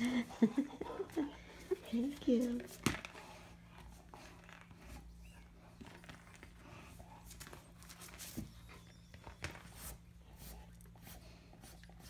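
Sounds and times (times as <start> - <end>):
dog panting: 0.0 - 9.3
puppy chewing a ball: 2.6 - 12.0.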